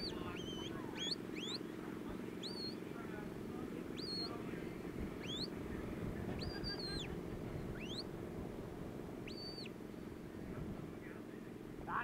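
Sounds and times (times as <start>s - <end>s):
high-pitched whistles: 7.8s - 8.0s.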